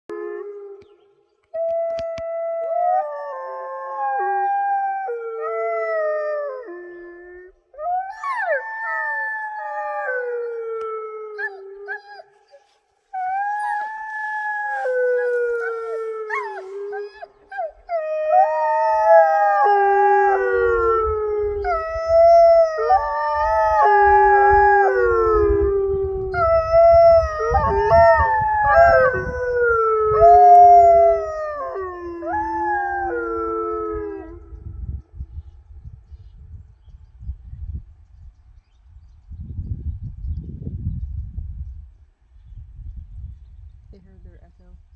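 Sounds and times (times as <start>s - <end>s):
wolf dogs howling: 1.6s - 34.7s.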